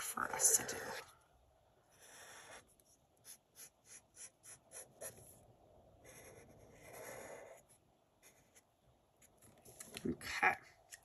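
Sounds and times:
marker drawing on paper: 1.9s - 5.4s, 6.0s - 9.4s.

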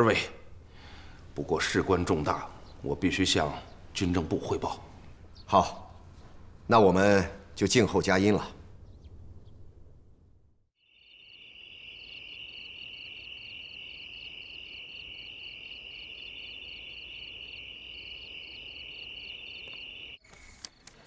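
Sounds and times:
insect high trill: 10.8s - 20.2s
insect rhythmic chirp: 10.8s - 20.2s.

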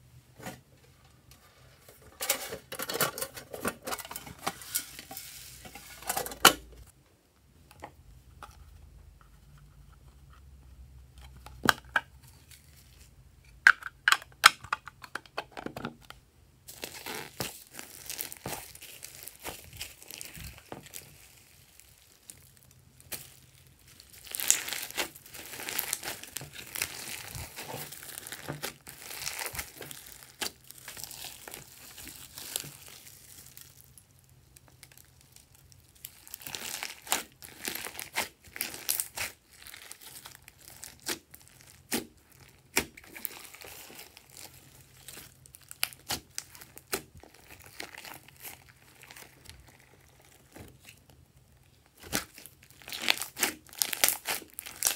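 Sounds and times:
hands squishing slime: 23.0s - 34.0s, 34.7s - 51.1s, 51.9s - 54.9s.

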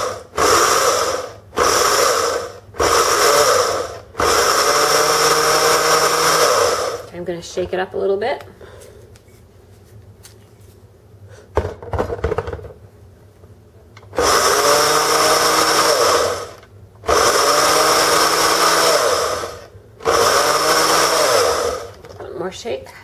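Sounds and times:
blender grinding oats: 0.0s - 7.1s, 14.1s - 22.2s.

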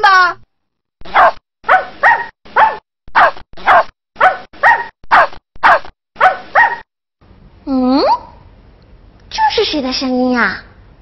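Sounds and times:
puppy barking: 1.0s - 6.8s.

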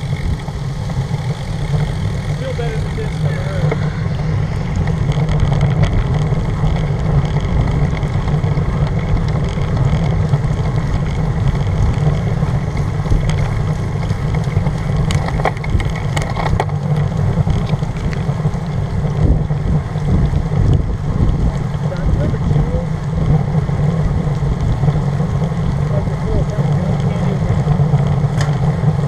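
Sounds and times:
sharp ticks: 0.0s - 18.2s
tyres hissing on wet road: 0.0s - 29.0s
wind on microphone: 0.0s - 29.0s.

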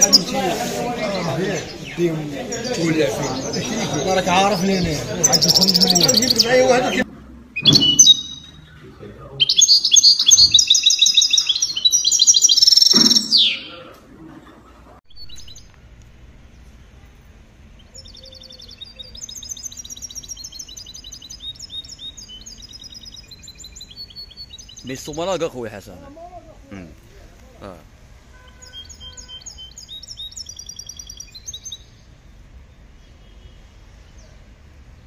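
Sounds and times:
songbird singing high trills: 5.2s - 7.0s, 7.6s - 8.7s, 9.4s - 13.7s, 15.1s - 15.8s, 17.8s - 25.4s, 28.4s - 32.0s.

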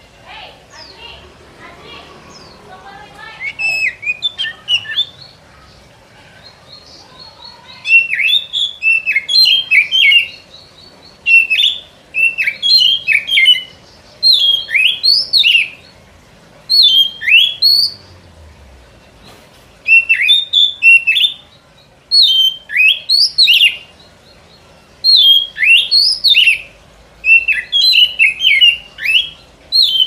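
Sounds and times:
bird whistling song: 3.4s - 5.3s, 7.3s - 15.9s, 16.7s - 18.0s, 19.8s - 23.9s, 25.0s - 30.0s.

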